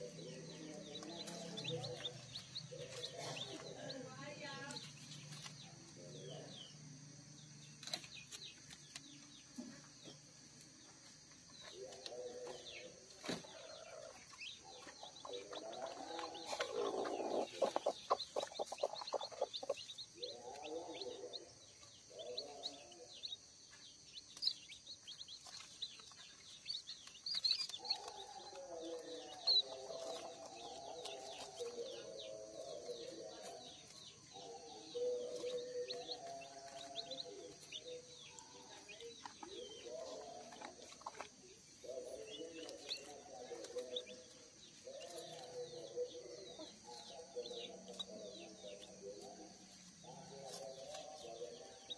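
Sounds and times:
chicks peeping: 0.0 - 51.9
hen clucking: 13.5 - 23.1.

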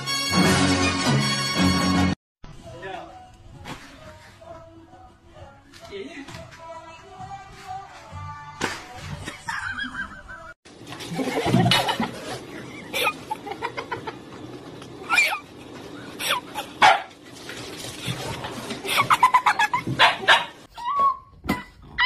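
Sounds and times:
dog barking and yelping: 15.0 - 15.4, 16.8 - 17.2, 19.8 - 21.2.

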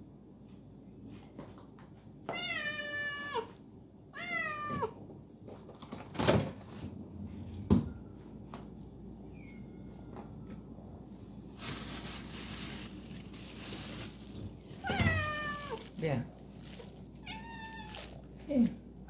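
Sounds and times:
kitten meowing: 14.8 - 15.9, 17.2 - 18.2.

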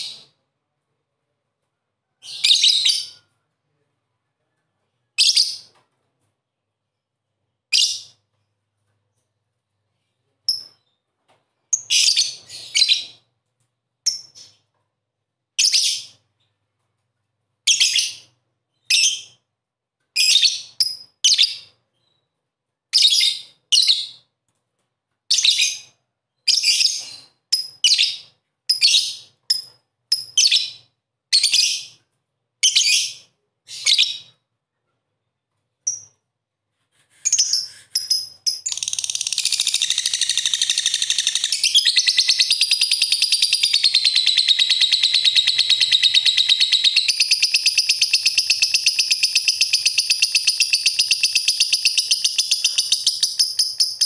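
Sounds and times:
lovebird shrill chirps: 37.2 - 54.0.

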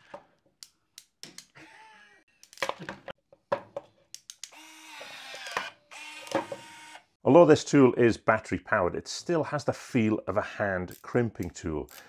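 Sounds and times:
hand crimper clicks and snaps: 4.1 - 4.6.

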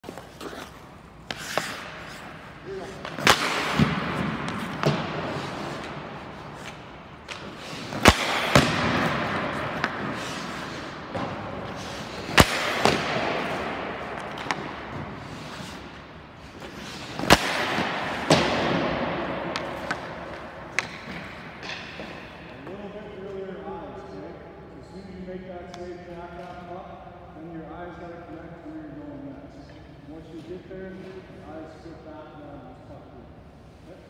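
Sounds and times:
hockey puck shot cracks: 3.0 - 16.0, 16.6 - 22.4
puck knocking against net: 3.0 - 16.0, 16.6 - 22.4.

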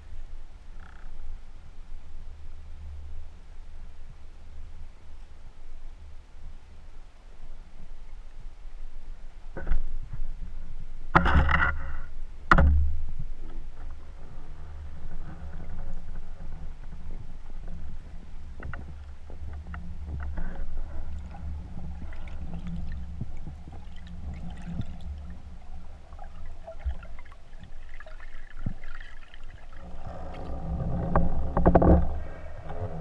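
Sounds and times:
underwater low rumble: 0.0 - 33.0
small underwater clicks and crackles: 0.7 - 1.5, 9.4 - 33.0.

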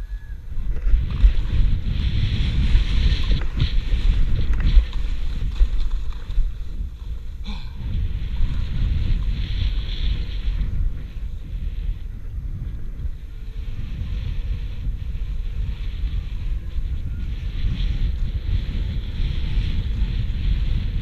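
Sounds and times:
wind rumbling on microphone: 0.0 - 21.0
skis scraping on snow: 0.6 - 7.4.

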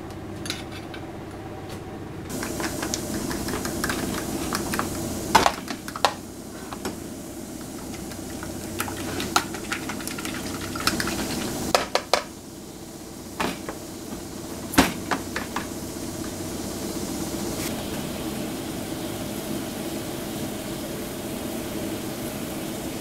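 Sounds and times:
fork beating eggs in a dish: 7.6 - 11.7.

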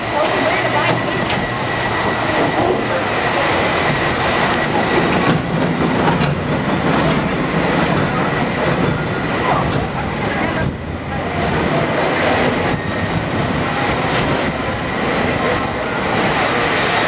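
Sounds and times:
streetcar wheels rumbling on rails: 0.0 - 17.0.

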